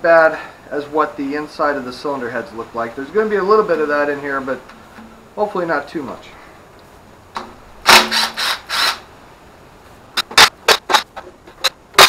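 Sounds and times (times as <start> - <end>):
impact driver spinning bolts: 7.4 - 9.0.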